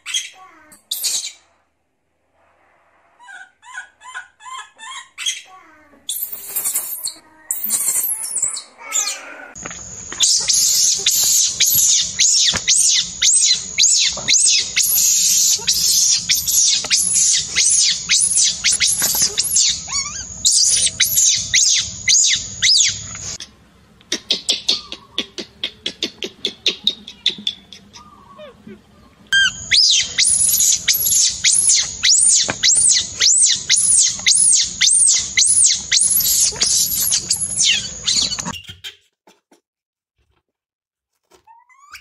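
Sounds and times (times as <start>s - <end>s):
baby monkey screaming: 3.2s - 5.5s, 6.1s - 9.6s, 10.2s - 23.4s, 29.3s - 38.8s.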